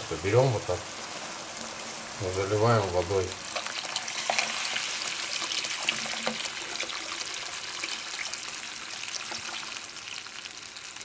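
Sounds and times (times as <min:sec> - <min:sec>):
water pouring into pot: 0:03.3 - 0:11.0.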